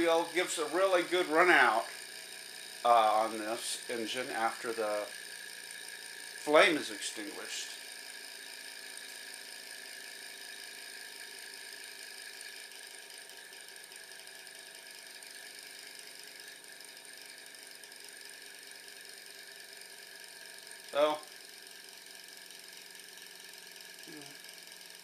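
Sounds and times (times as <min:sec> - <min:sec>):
stirling engine whirring: 0:00.0 - 0:07.9.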